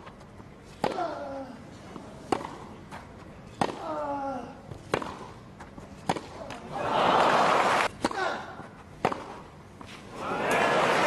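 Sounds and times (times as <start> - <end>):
rackets striking tennis ball: 0.8 - 1.1, 2.2 - 4.0, 4.7 - 6.7, 7.8 - 10.6.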